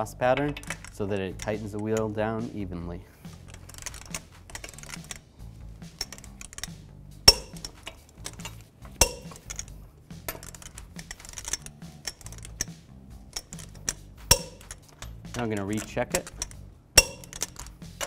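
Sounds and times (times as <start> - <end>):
torque wrench sharp clicks: 0.5 - 2.1, 10.3 - 18.0
ratchet ticks: 10.3 - 18.0.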